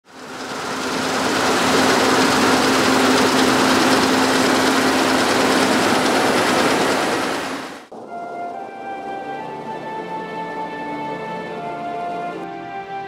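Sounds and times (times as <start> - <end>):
combine harvester running: 0.0 - 7.9.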